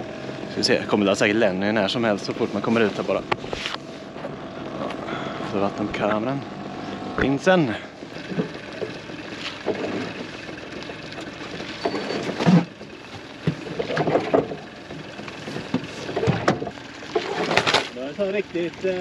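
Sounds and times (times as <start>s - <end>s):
fishing gear knocking and clattering: 7.9s - 18.0s.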